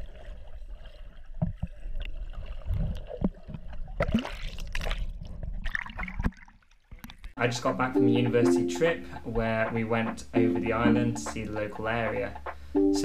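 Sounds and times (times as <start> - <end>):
underwater water sloshing: 0.0 - 7.4
water splashes: 0.0 - 7.4.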